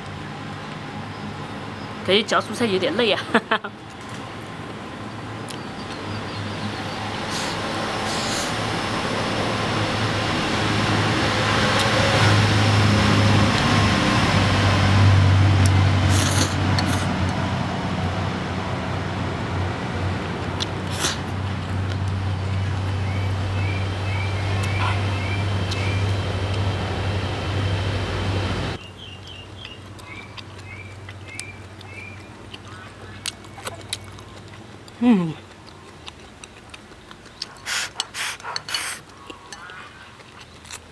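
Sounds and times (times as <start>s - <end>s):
birds chirping: 5.1s - 7.6s, 22.0s - 36.2s
vehicle engine running: 7.2s - 28.8s.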